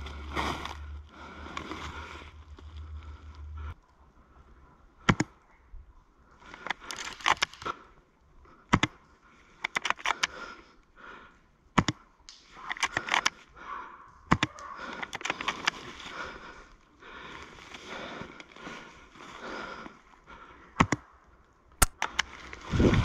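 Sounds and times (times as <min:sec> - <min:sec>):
clicks and rustling: 0:06.5 - 0:07.8, 0:09.6 - 0:10.4, 0:14.3 - 0:16.1
sharp cracks: 0:06.5 - 0:07.8, 0:11.8 - 0:13.4, 0:21.8 - 0:22.6.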